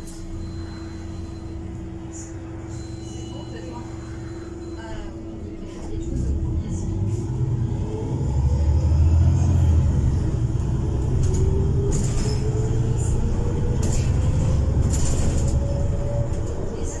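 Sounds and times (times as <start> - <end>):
bus drivetrain rumbling: 0.0 - 17.0.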